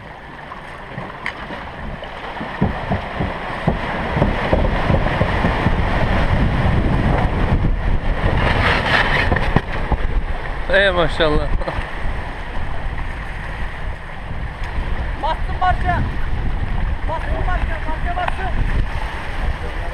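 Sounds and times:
boat cradle rumbling down slipway: 0:00.0 - 0:19.9
water splashing along hull: 0:00.0 - 0:19.9.

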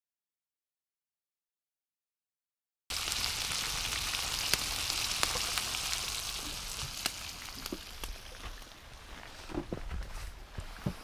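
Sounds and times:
food sizzling in hot oil: 0:02.9 - 0:08.7
oil popping: 0:02.9 - 0:08.7.

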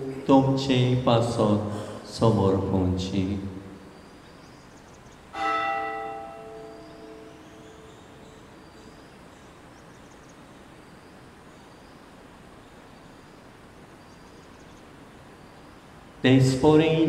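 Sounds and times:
bell ringing: 0:05.4 - 0:08.4.

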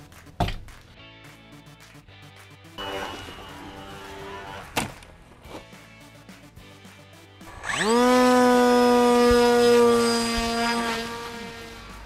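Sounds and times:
quiet background music: 0:00.0 - 0:12.0
electric motor and propeller whine: 0:02.8 - 0:05.4, 0:07.4 - 0:12.0.

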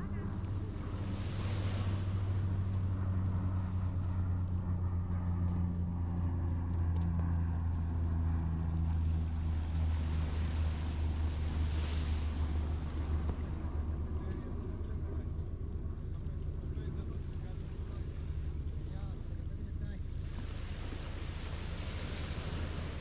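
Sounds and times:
boat engine droning: 0:00.0 - 0:23.0
waves washing onto pebble shore: 0:20.2 - 0:23.0.

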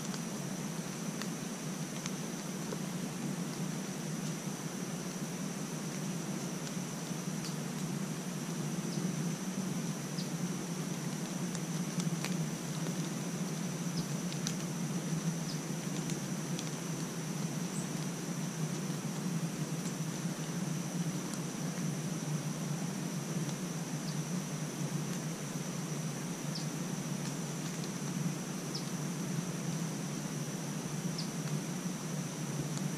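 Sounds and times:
steady hiss: 0:00.0 - 0:32.9
faint ticks: 0:05.8 - 0:08.0, 0:10.2 - 0:20.6, 0:32.5 - 0:32.9.

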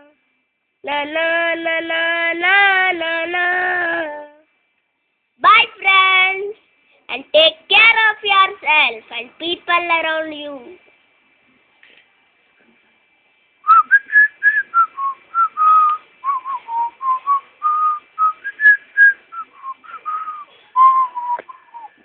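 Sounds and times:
person whistling a tune: 0:13.6 - 0:22.0.

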